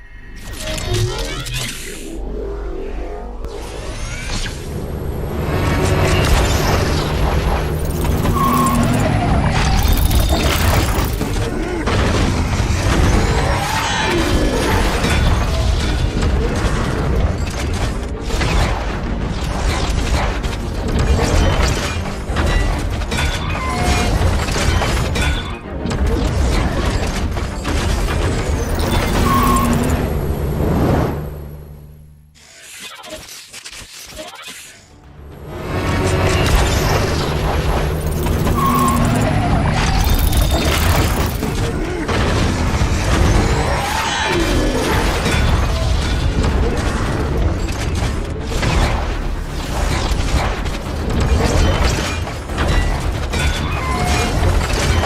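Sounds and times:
metal parts clanking and ratcheting: 6.0s - 11.6s, 36.1s - 49.0s, 49.6s - 55.0s.

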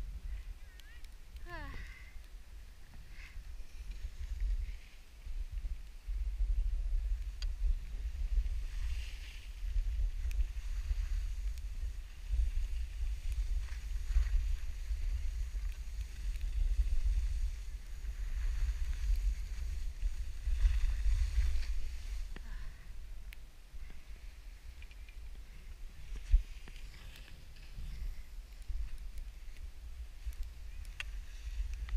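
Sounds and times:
wind buffeting microphone: 0.0s - 22.4s.

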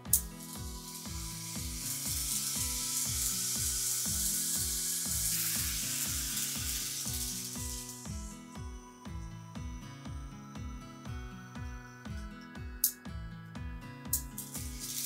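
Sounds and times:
music with sliding bass line: 0.0s - 15.0s
hissing noise sweep: 0.4s - 8.4s.

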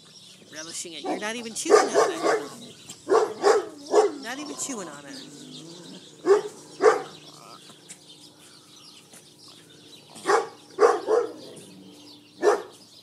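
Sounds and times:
faint birds chirping: 0.0s - 13.0s
dog barking: 1.0s - 4.8s, 6.2s - 7.3s, 10.2s - 11.7s, 12.4s - 12.8s.

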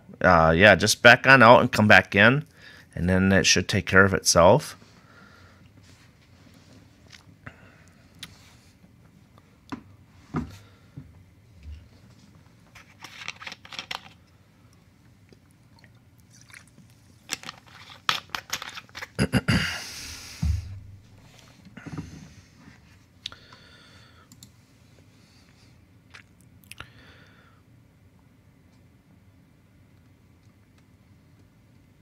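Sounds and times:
low thump: 20.4s - 21.1s.

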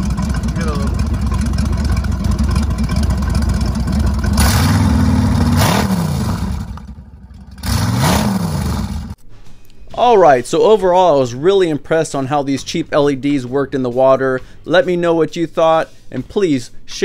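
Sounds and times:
boat engine rumbling and revving: 0.0s - 9.2s.

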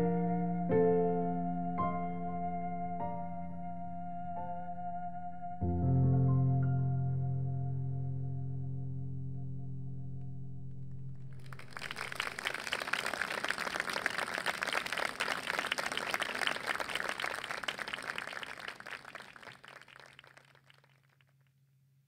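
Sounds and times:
audience clapping: 11.3s - 21.2s.

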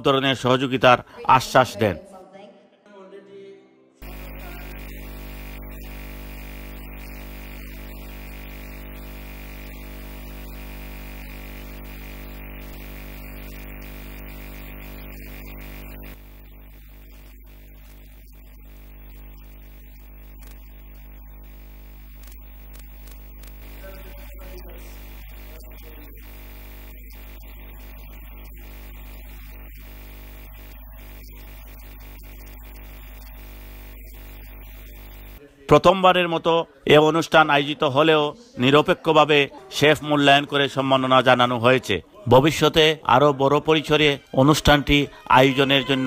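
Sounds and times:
electrical mains hum with hiss: 4.0s - 35.4s.

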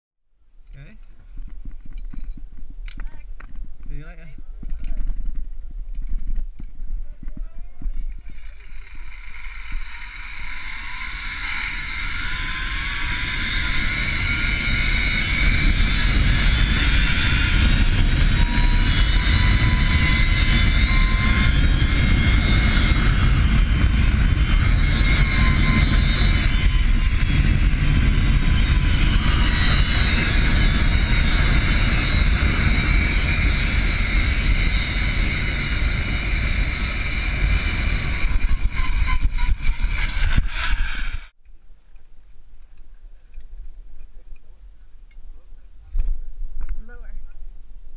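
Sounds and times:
wind buffeting microphone: 1.2s - 41.3s
zipline pulleys whirring on cable: 8.0s - 41.3s.

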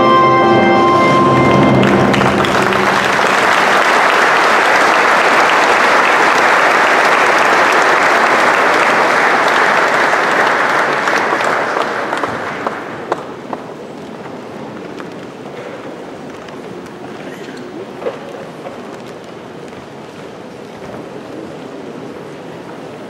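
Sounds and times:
large audience applauding: 0.7s - 14.0s.

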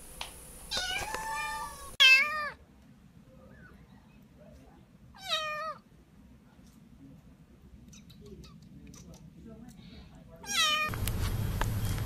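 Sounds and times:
kittens meowing: 0.7s - 2.6s.

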